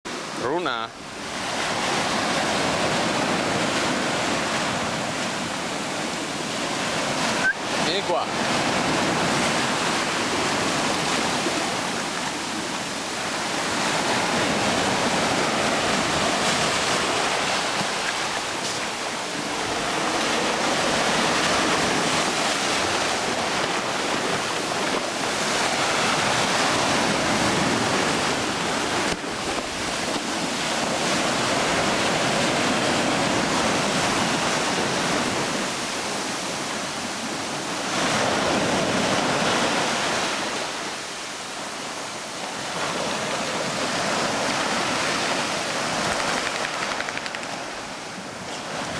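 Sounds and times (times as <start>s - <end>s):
surf breaking on beach: 0.1s - 48.9s.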